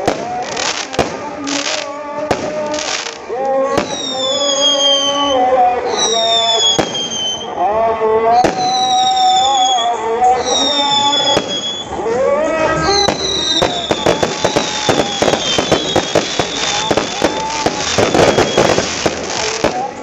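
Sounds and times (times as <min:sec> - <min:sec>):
firework bangs: 0:00.0 - 0:05.2, 0:05.9 - 0:07.5, 0:08.4 - 0:09.8, 0:10.4 - 0:12.0, 0:12.8 - 0:20.0
firework whistles falling in pitch: 0:03.8 - 0:07.5, 0:08.4 - 0:12.0, 0:12.8 - 0:19.5.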